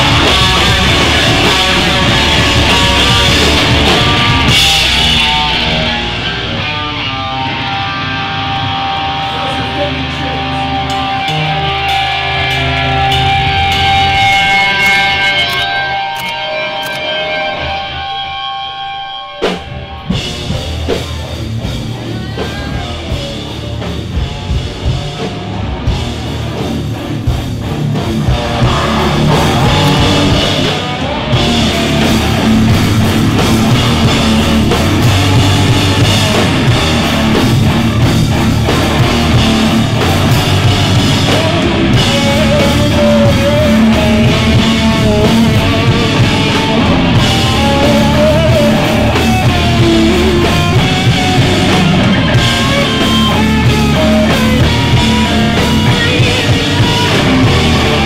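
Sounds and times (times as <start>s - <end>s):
rock band playing live: 0.0s - 58.0s
drum hits: 27.5s - 32.0s.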